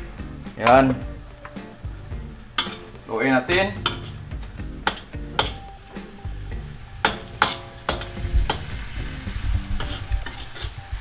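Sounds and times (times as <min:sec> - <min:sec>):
food sizzling: 0:00.0 - 0:11.0
wok ringing: 0:00.5 - 0:11.0
metal spatula scraping a wok: 0:02.5 - 0:11.0.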